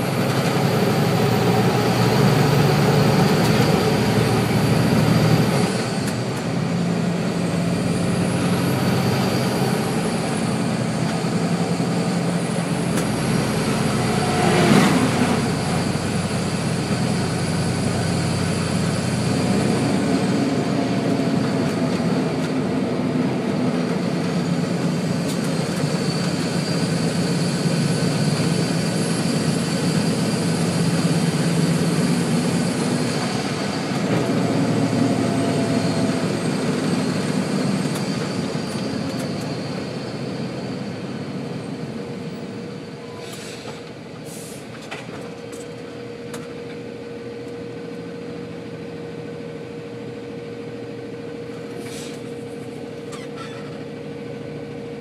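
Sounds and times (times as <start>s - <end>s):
diesel truck engine running: 0.0s - 55.0s
short hisses: 43.2s - 44.7s, 51.8s - 52.3s.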